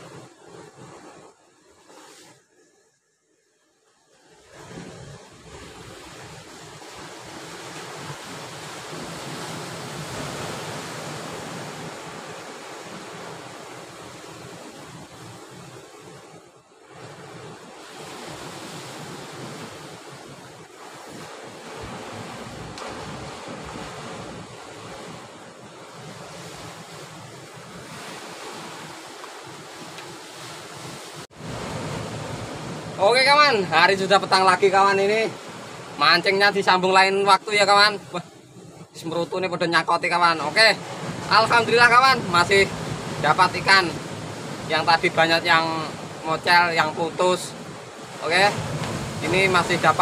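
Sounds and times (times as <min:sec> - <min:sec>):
waves breaking on rocks: 0:04.2 - 0:50.0
surf breaking on rocks: 0:40.2 - 0:50.0.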